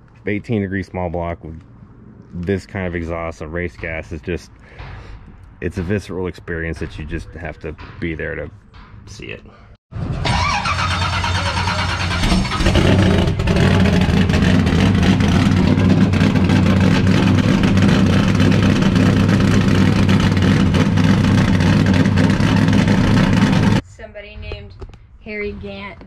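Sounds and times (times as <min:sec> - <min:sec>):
loud race car engine: 0:10.0 - 0:23.8.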